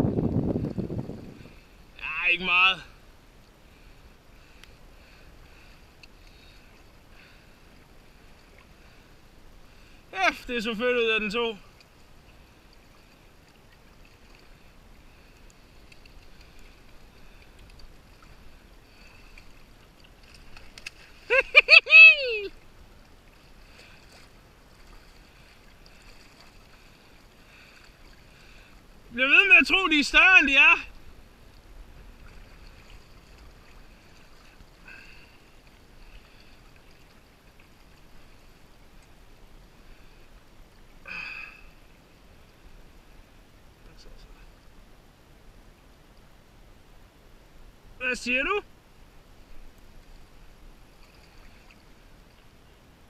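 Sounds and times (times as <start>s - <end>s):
wind rumble on microphone: 0.0s - 2.0s
light water sounds: 0.4s - 53.0s
faint clicks: 4.6s - 4.8s, 6.0s - 6.4s, 15.3s - 18.3s.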